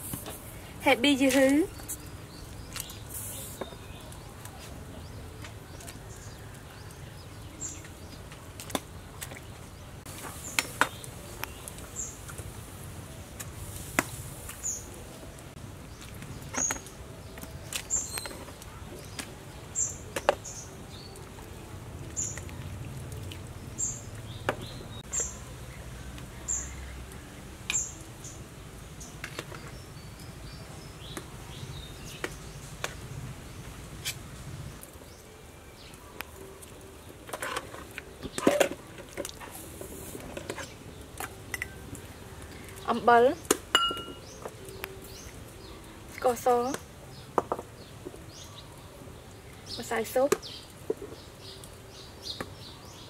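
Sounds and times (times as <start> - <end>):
spoon clinking on steel pot: 43.8 - 44.2.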